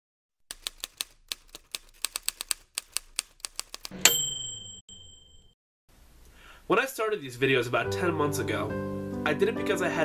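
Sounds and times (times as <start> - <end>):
typewriter keys clacking: 0.5 - 3.9
typewriter carriage bell: 4.0 - 5.5.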